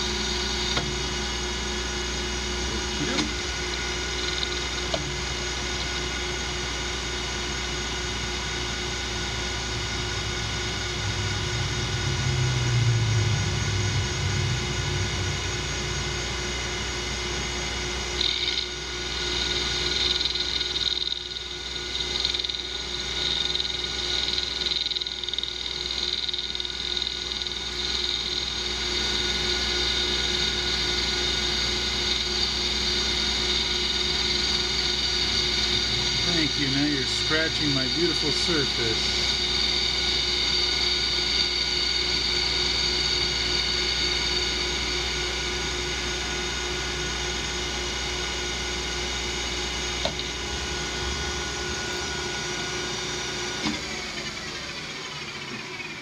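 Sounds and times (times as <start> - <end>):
metal lathe humming and whining: 0.0 - 56.0
cutting tool hiss: 18.2 - 44.7.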